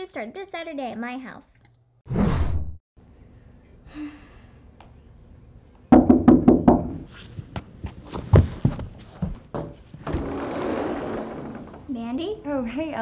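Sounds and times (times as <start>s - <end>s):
knocking on glass door: 5.9s - 7.0s
footsteps: 7.1s - 10.4s
sliding door opening: 10.0s - 12.0s.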